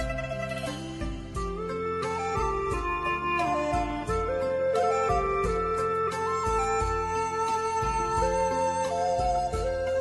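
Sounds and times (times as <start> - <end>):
flute-like sliding melody: 0.0 - 10.0.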